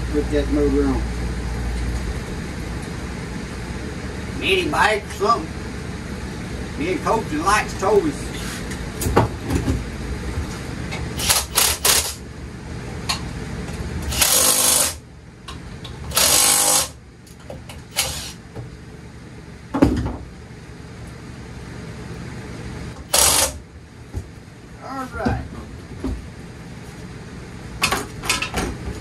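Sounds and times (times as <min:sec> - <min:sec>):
cordless drill bursts: 0:11.2 - 0:12.2, 0:14.1 - 0:15.0, 0:16.1 - 0:17.0, 0:17.9 - 0:18.4, 0:23.0 - 0:23.6.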